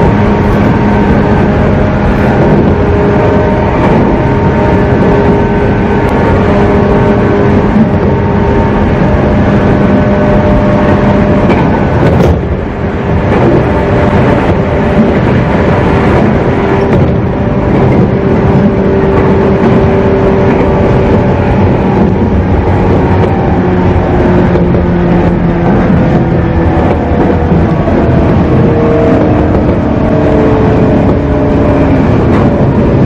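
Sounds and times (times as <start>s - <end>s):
traction motor drone: 0.0s - 33.0s
train wheels rumbling on rails: 0.0s - 33.0s.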